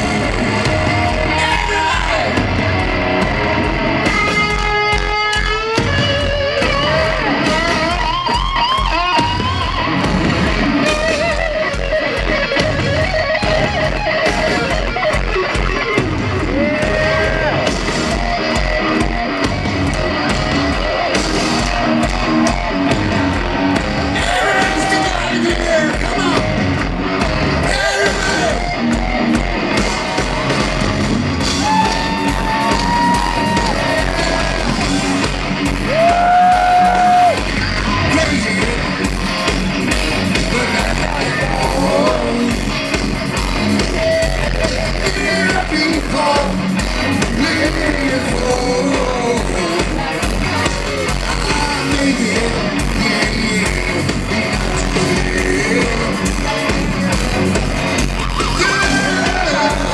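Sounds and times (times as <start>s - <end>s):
drums: 0.0s - 59.9s
electric guitar: 0.0s - 59.9s
heavy metal band playing live: 0.0s - 59.9s
person singing: 40.3s - 42.7s, 44.4s - 57.0s, 58.3s - 59.9s.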